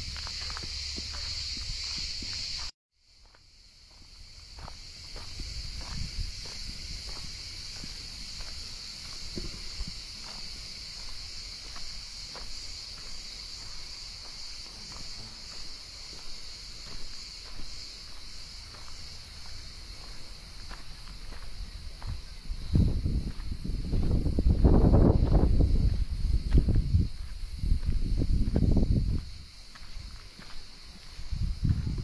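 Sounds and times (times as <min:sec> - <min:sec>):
cicadas buzzing: 0:00.0 - 0:32.0
wind rumble on microphone: 0:05.1 - 0:10.4, 0:20.7 - 0:30.2, 0:31.1 - 0:32.0.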